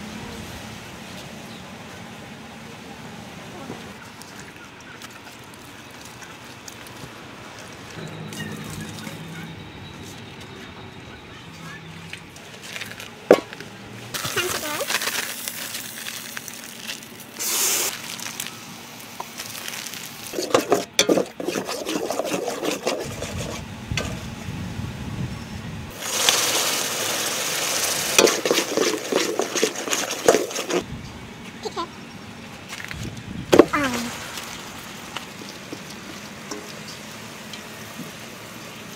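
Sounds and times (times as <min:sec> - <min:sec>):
metal ladle scraping in a pot: 0:20.4 - 0:24.2, 0:28.2 - 0:30.8.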